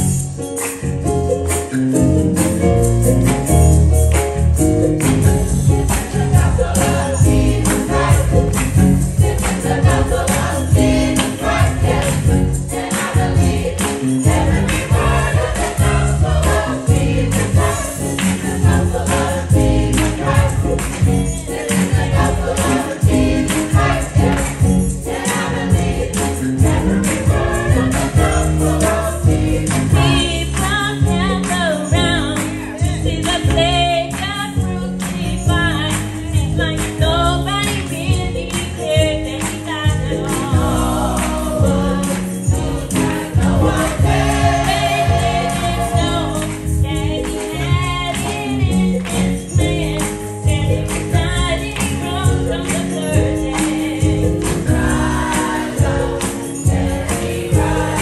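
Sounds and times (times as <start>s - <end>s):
gospel choir singing: 5.2s - 33.2s, 39.8s - 58.0s
steady beat and bass: 25.6s - 30.5s.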